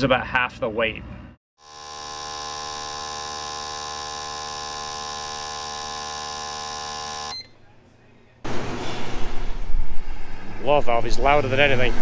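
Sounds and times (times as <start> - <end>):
steady electric buzz: 1.6 - 7.3.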